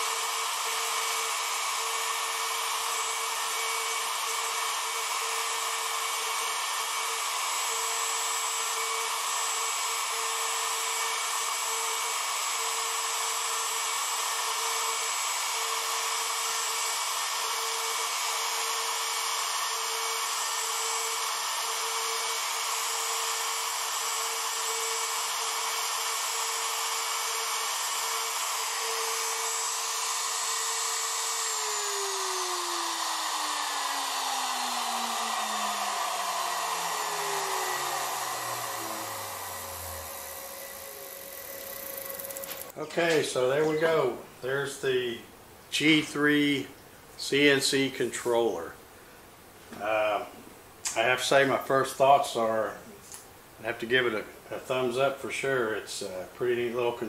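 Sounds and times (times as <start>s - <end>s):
router motor whining: 0.0s - 44.0s.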